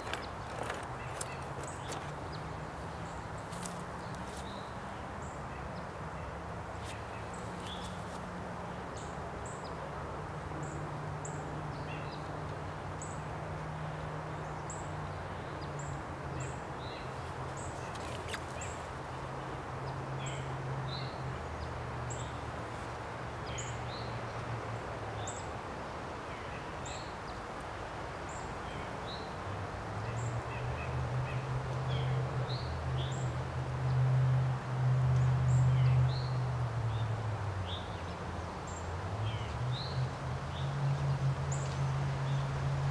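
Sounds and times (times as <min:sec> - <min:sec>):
small birds chirping: 0:00.0 - 0:08.2, 0:14.4 - 0:24.5
outdoor background noise: 0:00.0 - 0:42.9.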